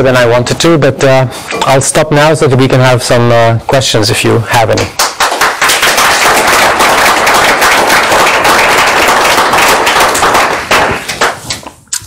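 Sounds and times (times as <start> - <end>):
audience applauding: 5.0 - 11.6.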